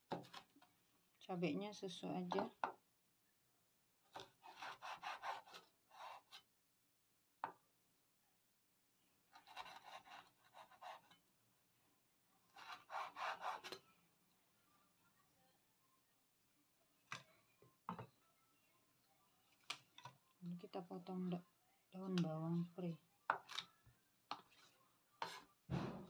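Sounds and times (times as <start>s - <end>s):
cleaver sawing on cutting board: 4.4s - 6.4s, 12.6s - 13.7s.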